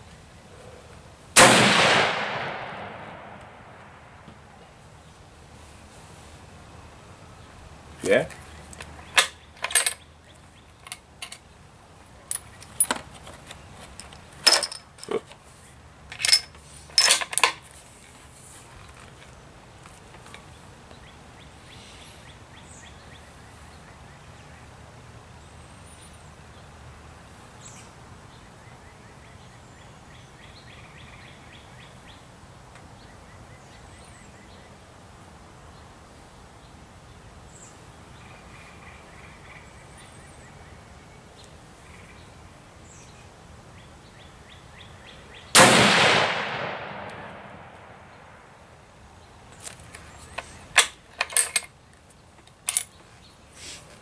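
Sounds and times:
rifle shot echoing: 1.4s - 4.4s, 45.6s - 48.5s
birds chirping: 6.7s - 17.1s, 18.2s - 24.8s, 35.7s - 45.6s, 47.4s - 54.0s.

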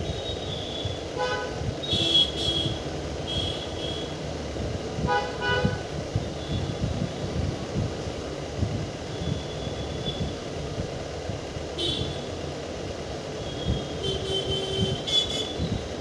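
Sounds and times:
steady low rumble: 0.0s - 16.0s
horn tooting: 13.4s - 15.7s.

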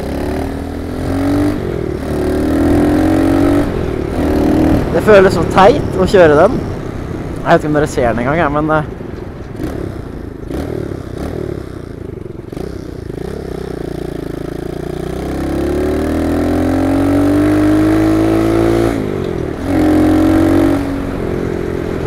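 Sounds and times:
small motorcycle engine revving: 0.0s - 5.0s, 9.6s - 21.4s.

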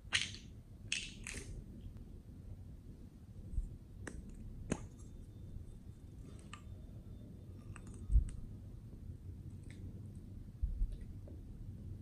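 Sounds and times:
plastic and metal pieces clicking: 0.1s - 1.6s.

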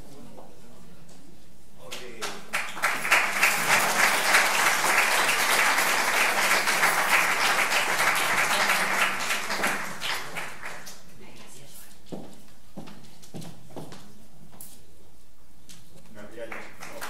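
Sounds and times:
audience applauding: 2.2s - 10.9s, 16.4s - 17.0s.

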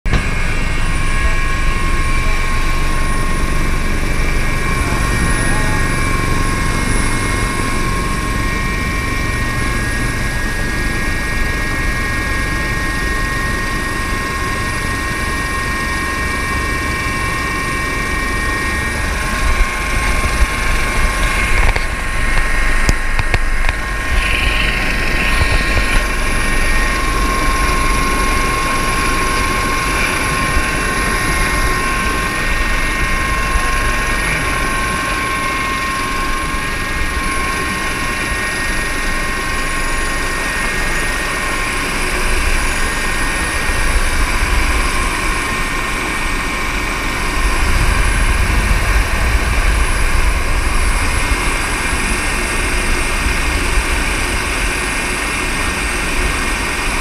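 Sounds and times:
helicopter engine and rotor drone: 0.0s - 57.0s
turbine and gearbox whine: 0.1s - 57.0s
hand rubbing camera: 20.1s - 26.2s.

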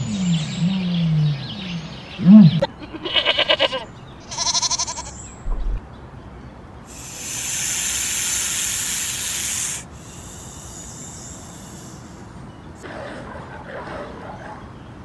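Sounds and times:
sheep bleating: 2.6s - 5.1s
snake hissing: 6.9s - 12.6s.

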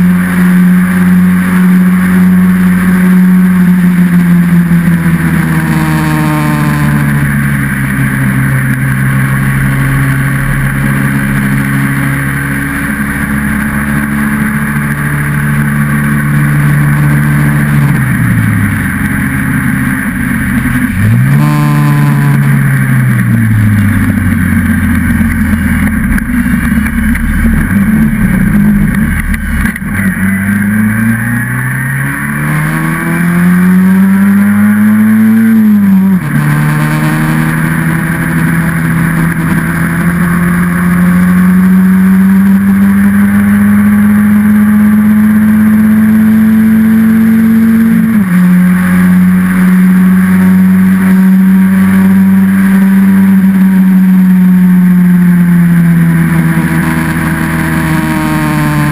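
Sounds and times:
small car engine running hard: 0.0s - 58.9s.

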